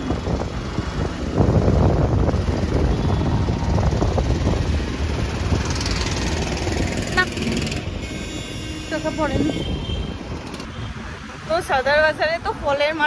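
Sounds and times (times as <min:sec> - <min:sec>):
wind rushing over microphone: 0:00.0 - 0:07.9
scooter road noise: 0:00.0 - 0:13.0
street traffic: 0:00.0 - 0:13.0.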